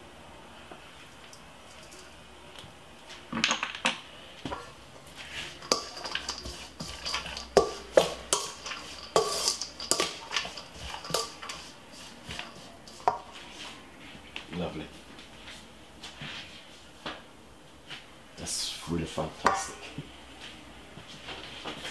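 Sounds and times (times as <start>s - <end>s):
metal bowl ringing: 5.6s - 6.5s
metal server clanking in bowl: 5.6s - 11.6s.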